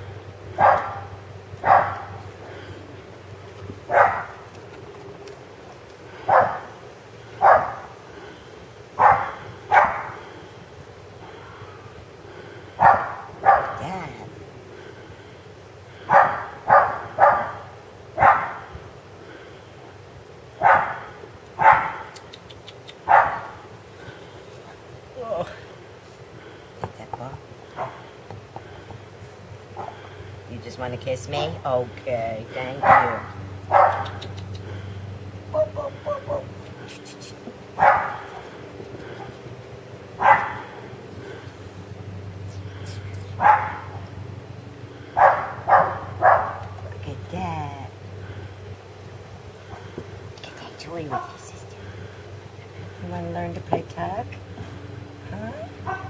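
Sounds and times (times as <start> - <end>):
puppy barking: 0.6 - 2.2, 3.9 - 4.4, 6.3 - 6.7, 7.4 - 7.9, 9.0 - 10.2, 12.8 - 13.8, 16.1 - 18.6, 20.6 - 22.1, 23.0 - 23.6, 32.8 - 34.3, 37.8 - 38.4, 40.2 - 40.7, 43.4 - 44.0, 45.2 - 46.6.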